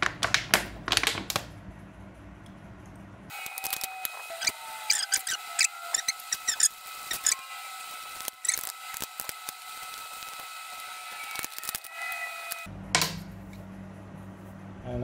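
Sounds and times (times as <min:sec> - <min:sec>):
toothbrush scrubbing metal: 0:03.6 - 0:10.4.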